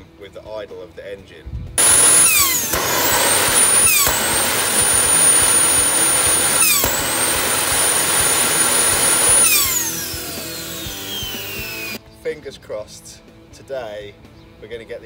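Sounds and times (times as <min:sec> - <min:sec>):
jet turbine engine whining: 0:01.8 - 0:12.0.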